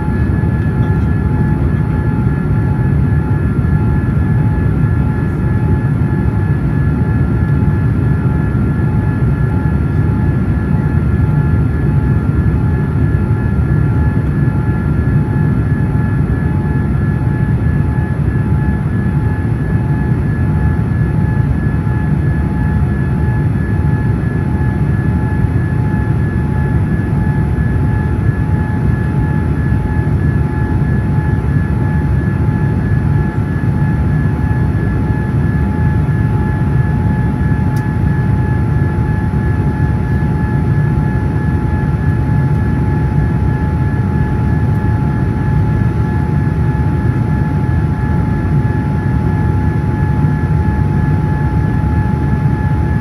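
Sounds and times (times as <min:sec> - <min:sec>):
airliner cabin rumble: 0:00.0 - 0:20.3.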